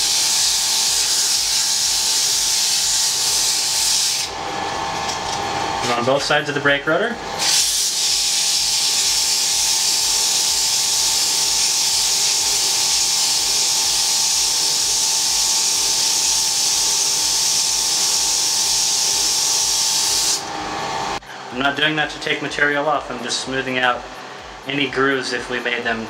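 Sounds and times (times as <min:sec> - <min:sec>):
sandpaper hissing on spinning rotor: 0:00.0 - 0:04.4, 0:07.4 - 0:21.2
lathe running tone: 0:00.0 - 0:26.0.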